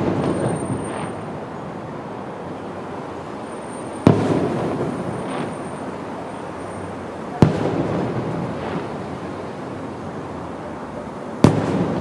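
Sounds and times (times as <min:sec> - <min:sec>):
firework bang with echo: 0:00.0 - 0:01.4, 0:04.0 - 0:05.9, 0:07.3 - 0:09.1, 0:11.4 - 0:12.0
low rumble of fireworks: 0:00.0 - 0:12.0.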